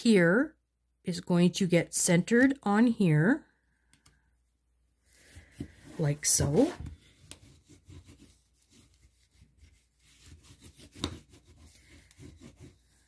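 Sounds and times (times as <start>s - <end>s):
bone folder scraping cardstock: 10.0s - 13.0s.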